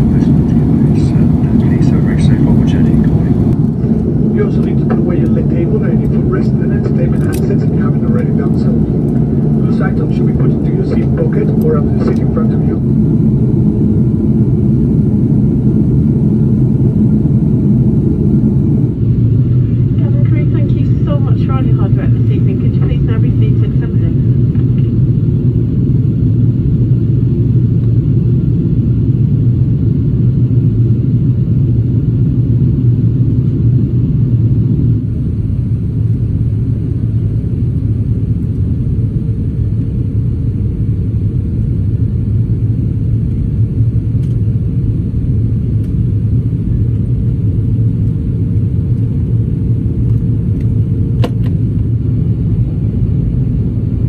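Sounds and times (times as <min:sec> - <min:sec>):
airliner cabin rumble: 0:00.0 - 0:54.0
faint steady hum: 0:00.0 - 0:54.0
click: 0:44.2 - 0:44.4.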